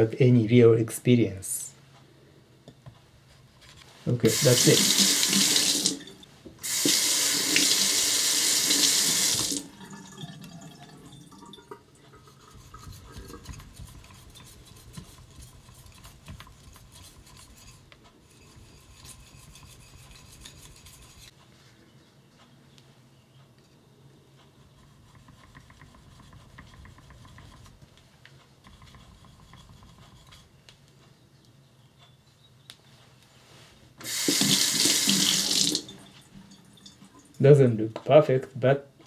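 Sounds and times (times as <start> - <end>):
tap water splashing into sink: 8.7 - 10.6, 34.0 - 36.0
knife scraping on whetstone: 12.3 - 21.3, 28.7 - 30.5.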